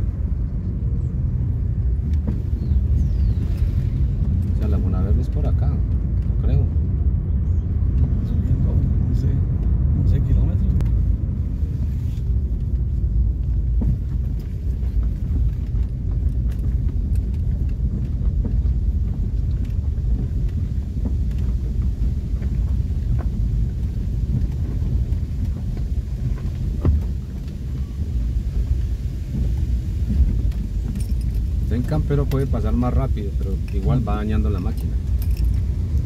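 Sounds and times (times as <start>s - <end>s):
car driving over rough road: 0.0s - 36.0s
faint knocks and rattles: 12.2s - 36.0s.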